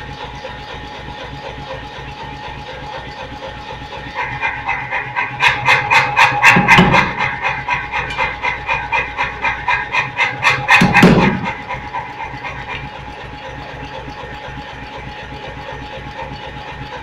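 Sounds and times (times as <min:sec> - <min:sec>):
motor humming: 0:00.0 - 0:17.0
power hammer striking steel: 0:04.2 - 0:12.8.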